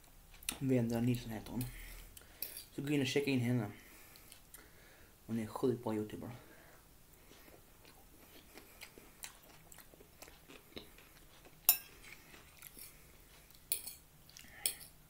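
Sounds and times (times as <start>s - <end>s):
close-up chewing: 7.1s - 14.9s
fork clinking on a plate: 11.7s - 12.0s.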